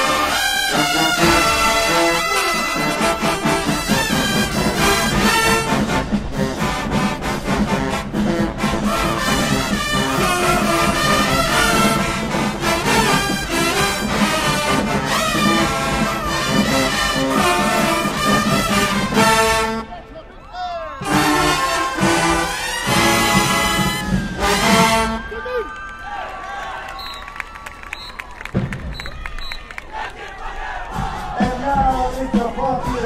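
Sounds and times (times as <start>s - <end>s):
drumline drumming: 0.0s - 19.8s, 21.0s - 25.4s, 26.8s - 33.0s
brass horns: 0.0s - 20.1s, 21.0s - 25.4s.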